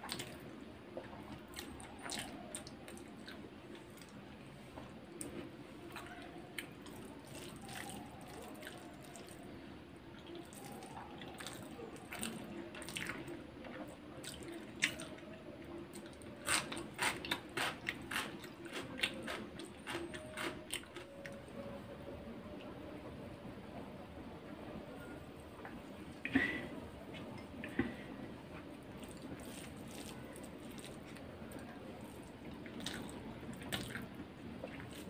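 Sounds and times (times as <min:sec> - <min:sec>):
chewing with wet mouth clicks: 0:29.0 - 0:31.6, 0:32.2 - 0:35.0.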